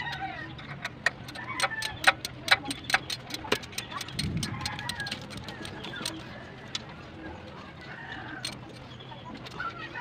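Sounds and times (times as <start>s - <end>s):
ratchet wrench clicking: 0.0s - 6.2s.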